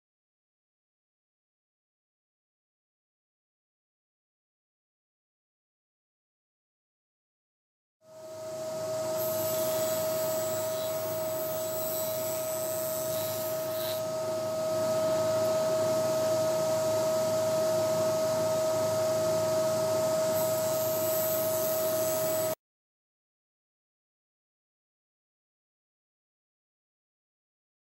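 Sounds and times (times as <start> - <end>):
table saw whining: 8.3 - 22.6.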